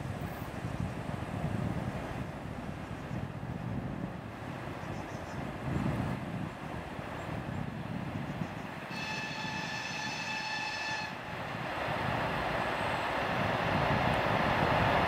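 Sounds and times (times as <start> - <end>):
train engines and wheels: 0.0 - 15.0
locomotive horn blast: 8.9 - 11.4.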